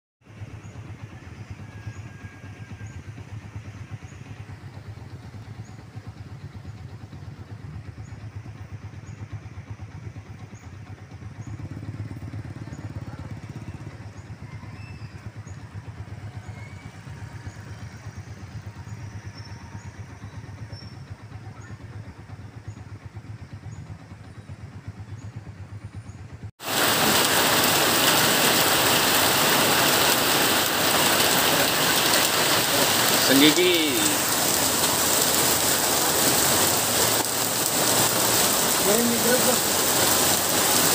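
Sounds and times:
idling and crawling engines: 0.2s - 40.9s
heavy rain pouring: 26.6s - 40.9s.

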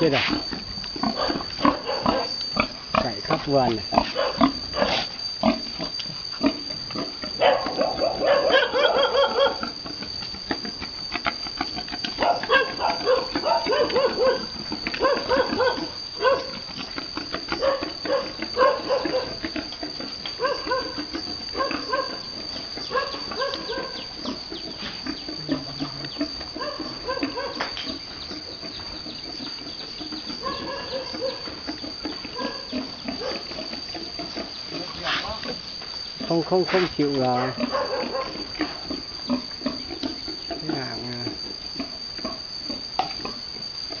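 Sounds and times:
pig grunting: 23.8s - 27.3s.

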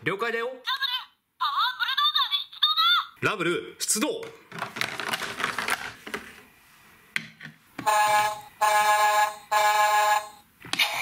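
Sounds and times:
toy alarm-like buzzing tone: 7.8s - 11.0s.

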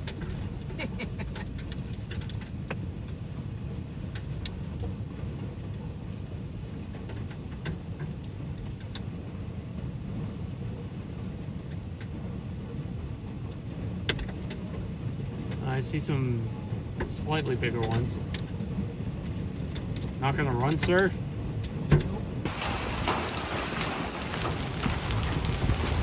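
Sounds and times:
heavy rain drumming on car roof: 0.0s - 26.0s
hailstones ticking on car: 17.0s - 26.0s.

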